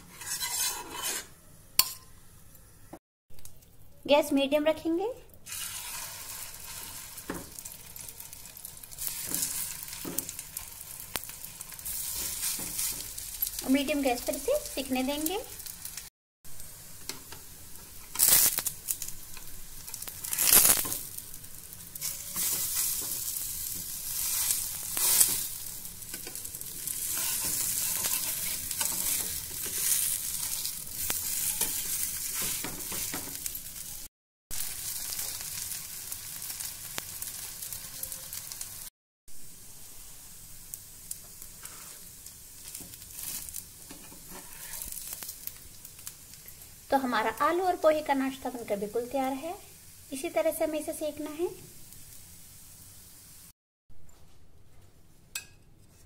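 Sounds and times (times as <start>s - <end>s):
spatula scraping pan: 0.0s - 2.0s, 26.1s - 33.5s, 43.2s - 45.0s
patties sizzling in frying pan: 5.4s - 53.5s.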